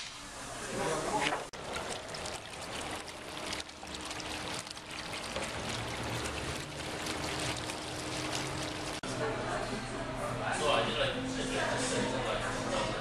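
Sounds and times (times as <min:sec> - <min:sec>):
fountain water trickling and splashing: 0:01.5 - 0:09.0.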